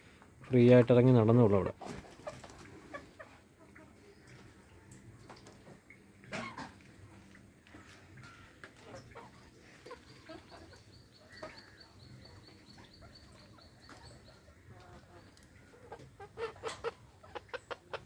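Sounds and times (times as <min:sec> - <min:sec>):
chickens clucking: 0:00.0 - 0:18.0.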